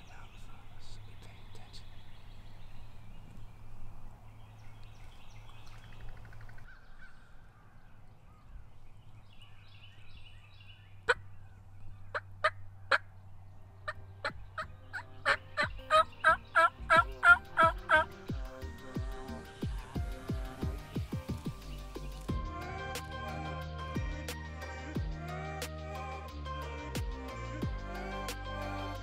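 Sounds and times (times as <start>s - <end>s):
turkey yelping: 13.8s - 18.1s.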